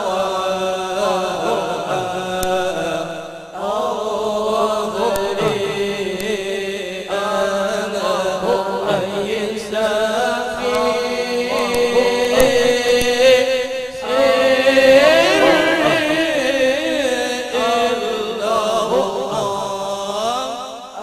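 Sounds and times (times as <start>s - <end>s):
man singing ornamented melody: 0.0s - 21.0s
men's voices holding a note: 3.6s - 7.4s, 8.0s - 20.5s.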